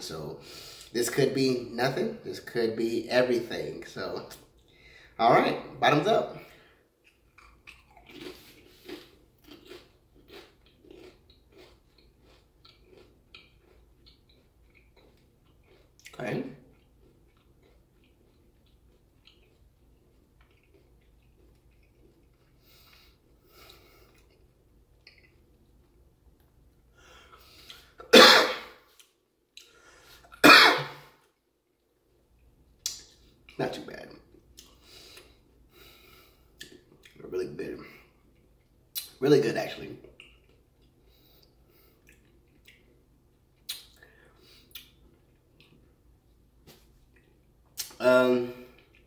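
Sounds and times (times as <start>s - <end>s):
faint breathing: 4.7s - 5.2s, 26.9s - 28.0s, 29.6s - 30.3s, 34.8s - 36.6s, 44.0s - 44.7s
man chewing crunchy chip: 7.0s - 26.1s
man coughing: 28.0s - 28.8s, 30.4s - 31.0s.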